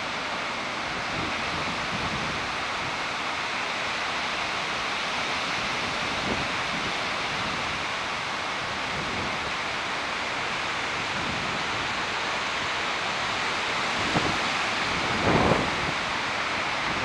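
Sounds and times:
wind through leafy trees: 0.0 - 17.0
wind buffeting microphone: 13.8 - 16.2.

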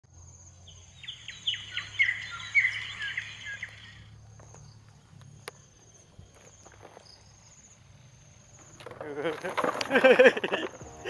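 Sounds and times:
birds chirping: 0.1 - 11.0
high insect drone: 0.1 - 11.0.

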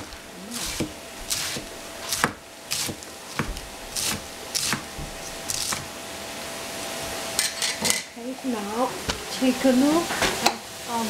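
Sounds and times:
knife chopping on wooden board: 0.0 - 5.9.

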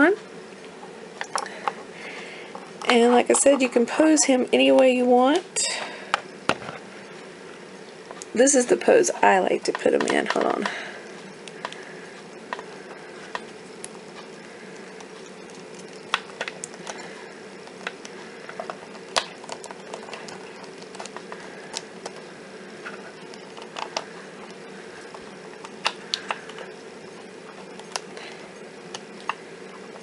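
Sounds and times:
faint steady hum: 0.0 - 30.0.

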